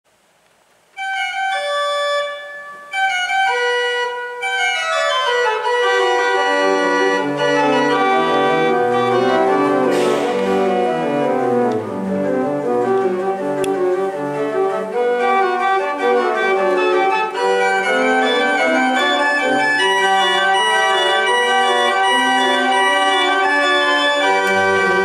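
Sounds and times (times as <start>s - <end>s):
church organ playing: 1.0s - 25.0s.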